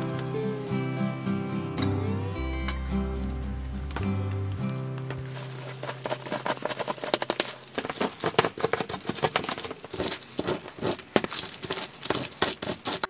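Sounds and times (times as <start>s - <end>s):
plastic piping bags crinkling: 3.2s - 13.0s.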